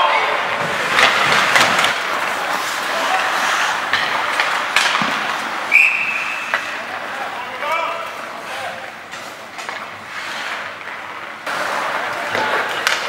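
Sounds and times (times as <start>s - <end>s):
skates scraping on ice: 0.0s - 13.0s
stick hitting puck: 0.2s - 6.9s, 9.1s - 10.0s, 10.6s - 13.0s
referee's whistle: 5.7s - 6.6s.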